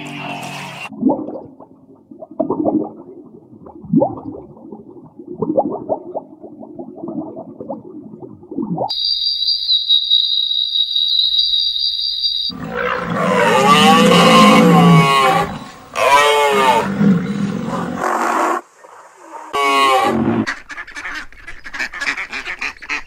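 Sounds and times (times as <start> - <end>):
high whistling tone: 8.9 - 12.6
animal roars: 12.5 - 18.6.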